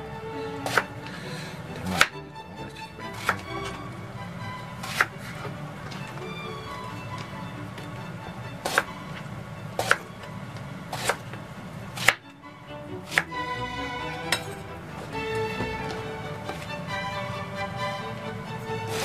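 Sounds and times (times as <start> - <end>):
background music: 0.0 - 11.2, 12.0 - 19.0
knife chopping on cutting board: 8.7 - 8.9, 9.8 - 10.0, 11.0 - 11.2, 12.0 - 12.2.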